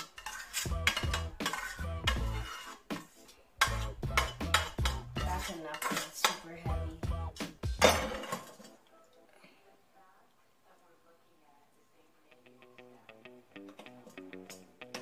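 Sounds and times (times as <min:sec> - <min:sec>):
metal utensil scraping a pot: 0:00.0 - 0:06.7, 0:07.8 - 0:08.8.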